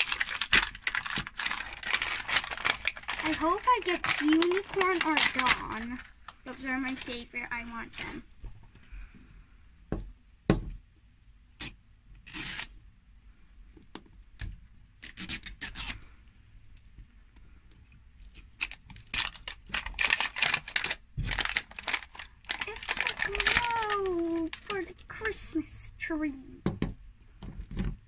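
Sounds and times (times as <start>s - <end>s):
plastic wrapping crinkling: 0.0s - 8.1s, 18.2s - 25.5s
sticker seal tearing: 11.6s - 12.7s, 15.0s - 16.0s, 18.3s - 24.8s.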